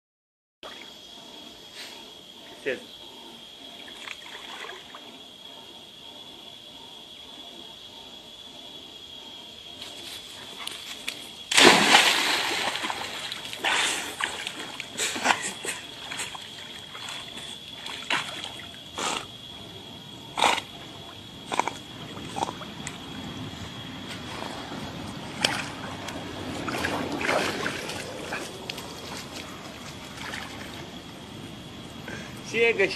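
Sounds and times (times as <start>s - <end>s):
water sloshing from swimming: 2.4s - 5.6s, 9.2s - 31.9s
dog splashing into pond: 11.0s - 18.7s, 26.7s - 28.4s, 30.0s - 30.9s.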